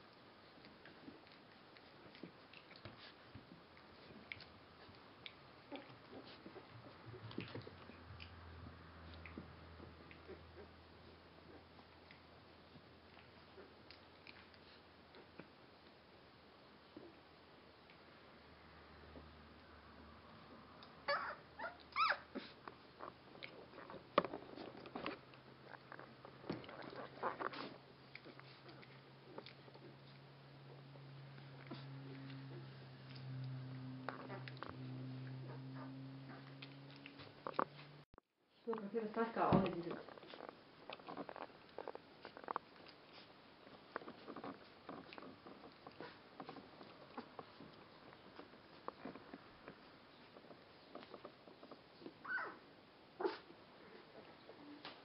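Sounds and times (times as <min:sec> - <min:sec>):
puppies snuffling: 0:00.0 - 0:17.2, 0:20.4 - 0:38.0, 0:39.0 - 0:55.0
paws scrabbling on bedding: 0:00.5 - 0:15.6, 0:22.3 - 0:38.0, 0:39.2 - 0:52.6
puppy high squeaks: 0:21.1 - 0:22.5, 0:52.2 - 0:52.6
puppies whimpering: 0:21.1 - 0:22.6, 0:52.0 - 0:52.6
soft rustling: 0:36.5 - 0:55.0.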